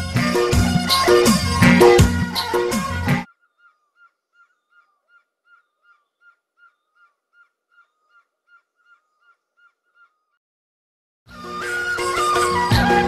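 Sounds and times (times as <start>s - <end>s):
barbet calling: 0.8s - 10.4s.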